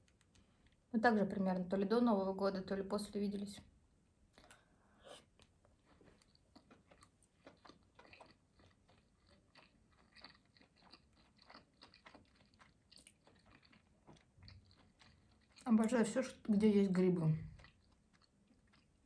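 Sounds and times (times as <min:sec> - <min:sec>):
person chewing: 0:04.3 - 0:16.0, 0:17.4 - 0:19.0.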